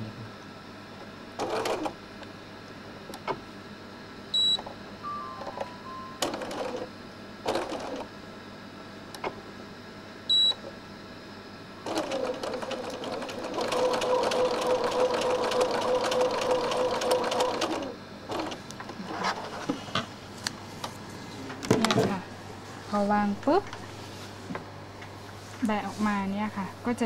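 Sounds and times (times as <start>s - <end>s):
short high beep: 4.4s - 6.3s
sewing machine stitching: 11.9s - 18.6s.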